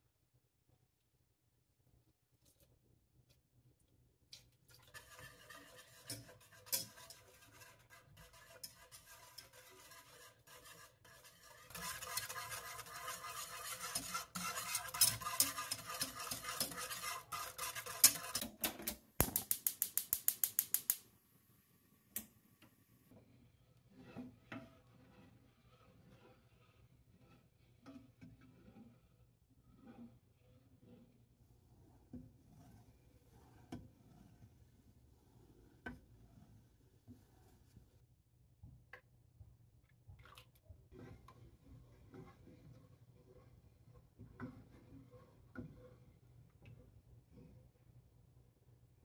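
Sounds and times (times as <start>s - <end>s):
whisk stirring milk: 4.4s - 18.6s, 23.1s - 37.8s, 40.9s - 48.1s
whisk scraping metal pan: 4.7s - 18.6s, 23.1s - 37.5s, 40.9s - 47.8s.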